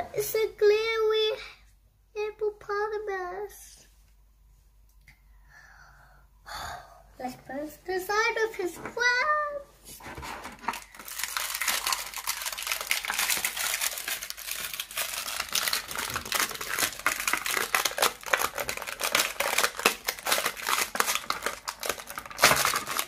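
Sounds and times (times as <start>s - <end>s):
plastic packaging crinkling: 10.1s - 23.0s.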